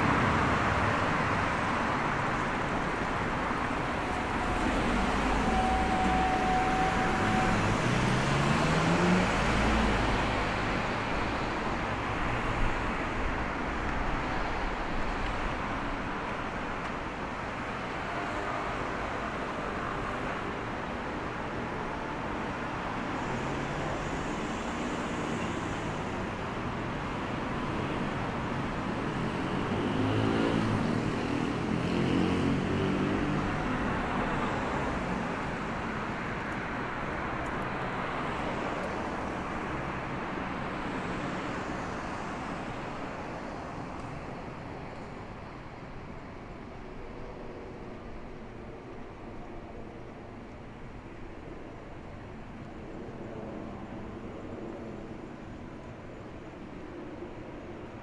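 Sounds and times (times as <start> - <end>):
cars passing: 0.0 - 20.9, 22.8 - 48.2.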